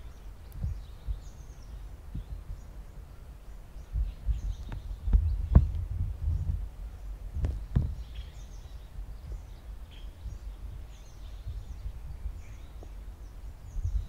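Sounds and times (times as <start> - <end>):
wind rumble on microphone: 0.0 - 14.0
faint high bird chirps: 7.9 - 14.0.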